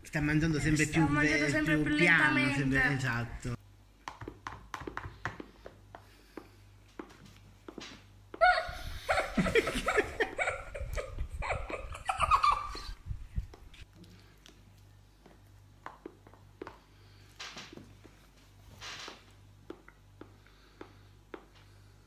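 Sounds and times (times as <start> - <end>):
people laughing: 8.4 - 13.0
eating noises: 13.4 - 16.6.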